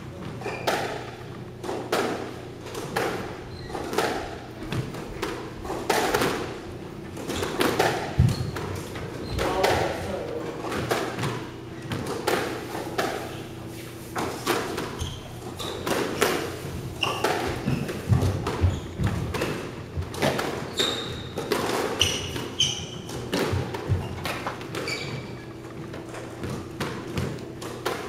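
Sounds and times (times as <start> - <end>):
shoes squeaking on wooden floor: 0.1 - 1.6, 3.3 - 5.8, 7.0 - 12.2, 12.8 - 27.6
ball hitting wall and floor: 0.2 - 28.0
racket hitting squash ball: 0.3 - 28.0.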